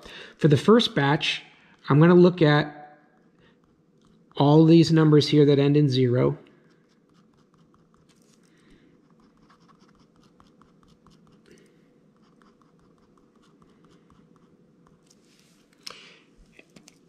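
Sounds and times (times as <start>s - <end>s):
pen scratching on paper: 3.2s - 4.6s, 6.6s - 8.4s, 9.0s - 11.5s, 12.1s - 15.4s.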